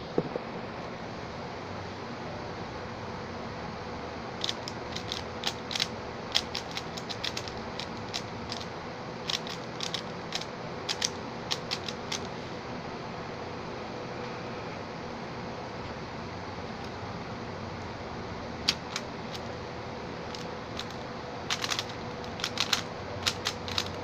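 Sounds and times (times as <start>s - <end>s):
puzzle cube plastic clicks: 4.4s - 12.3s, 18.7s - 19.6s, 20.3s - 24.0s.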